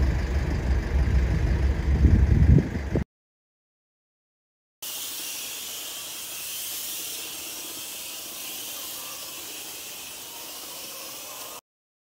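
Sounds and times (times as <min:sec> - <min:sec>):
spray wand hissing: 0:04.8 - 0:11.6.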